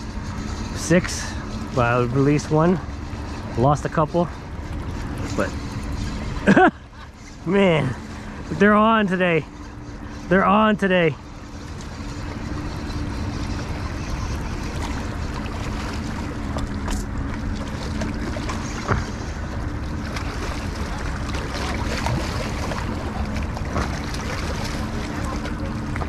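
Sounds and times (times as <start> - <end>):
boat engine drone: 0.0 - 26.0.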